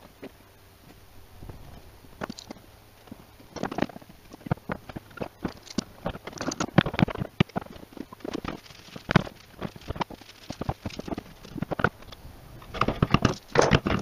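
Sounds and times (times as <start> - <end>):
metal clamps clicking and knocking on wood: 12.7 - 14.0.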